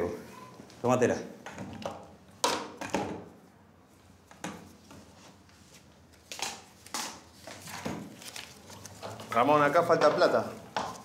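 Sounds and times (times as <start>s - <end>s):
banknotes rustling: 5.0s - 11.0s.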